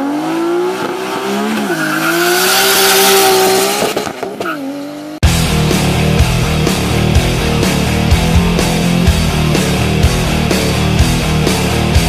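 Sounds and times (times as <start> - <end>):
car engine accelerating hard: 0.0 - 4.4.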